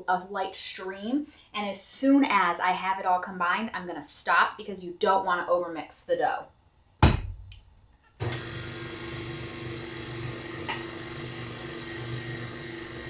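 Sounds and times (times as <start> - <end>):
stand mixer motor whirring: 8.2 - 13.0.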